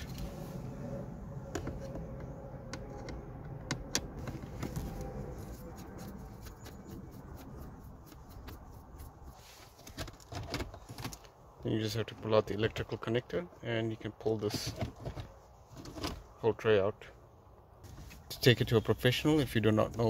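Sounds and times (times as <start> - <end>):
low steady rumble: 0.0 - 9.5.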